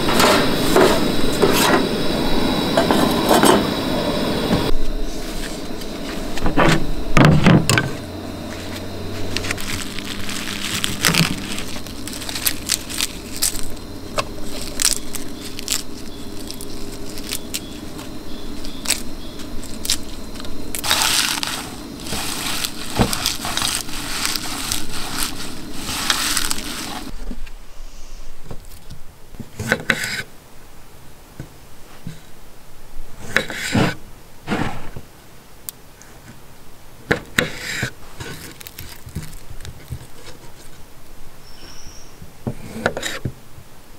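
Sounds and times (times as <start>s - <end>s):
kale crunching and crinkling: 7.9s - 27.2s, 38.0s - 40.8s.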